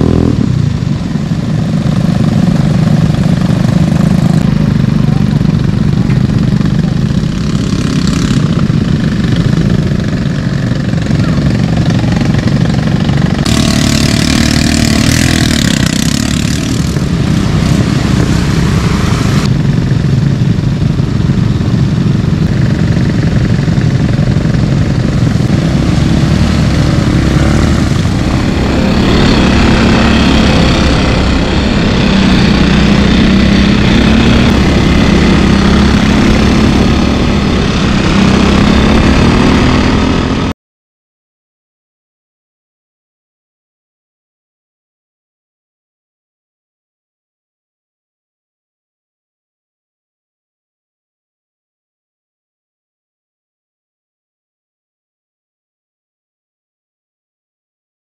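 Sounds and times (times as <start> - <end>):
atv engine idling and revving: 0.0 - 40.6.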